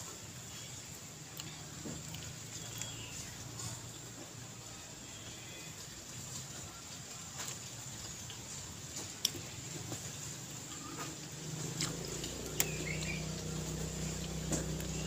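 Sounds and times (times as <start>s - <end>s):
soft chewing: 0.0s - 15.0s
bird chirping: 2.5s - 3.7s, 10.7s - 15.0s
low engine hum: 10.5s - 15.0s.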